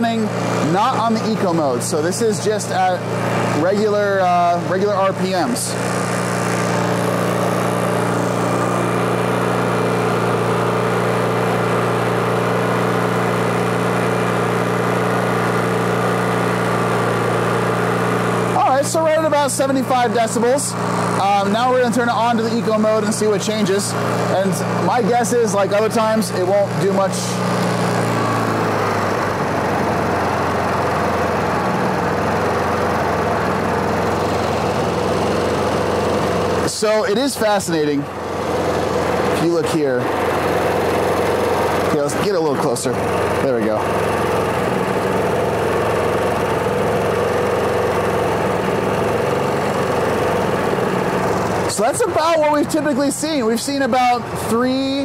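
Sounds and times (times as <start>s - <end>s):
generator running: 0.0s - 55.0s.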